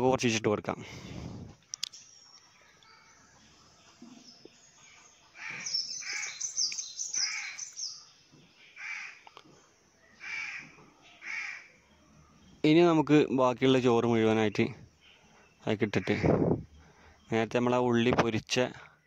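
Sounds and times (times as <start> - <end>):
small birds chirping: 0.0 - 19.0
crow cawing: 5.4 - 6.4, 7.1 - 7.7, 8.8 - 9.3, 10.2 - 11.7.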